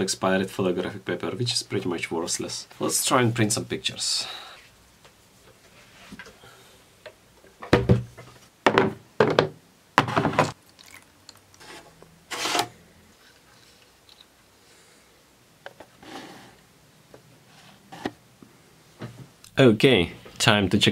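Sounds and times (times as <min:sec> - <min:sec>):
knocks and scrapes of wood and metal: 0:07.6 - 0:10.6, 0:11.6 - 0:13.8, 0:17.5 - 0:18.2.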